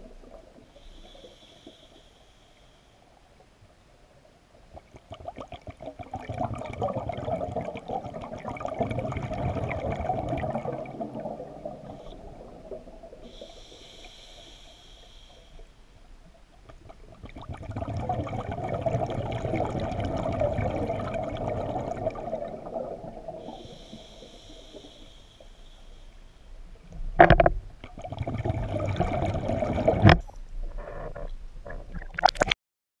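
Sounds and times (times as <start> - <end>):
regulator inhalation hiss: 0.8 - 3.2, 13.2 - 16.0, 23.4 - 26.6
exhaled bubbles underwater: 4.7 - 13.7, 16.6 - 25.0, 27.3 - 30.2.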